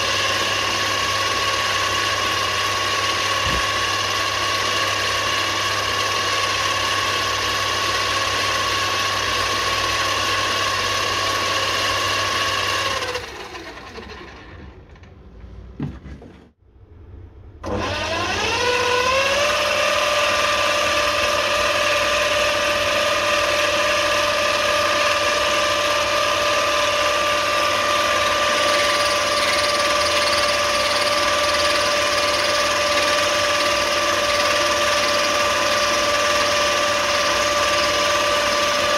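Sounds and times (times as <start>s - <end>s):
lathe whining: 17.6s - 38.9s.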